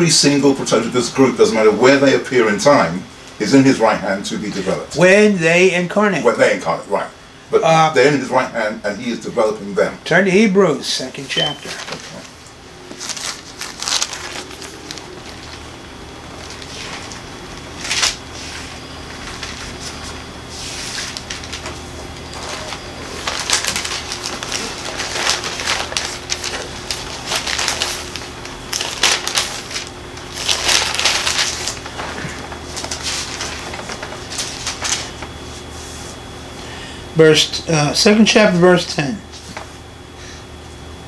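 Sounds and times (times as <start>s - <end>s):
book pages rustling: 11.4s - 15.7s, 16.4s - 36.2s.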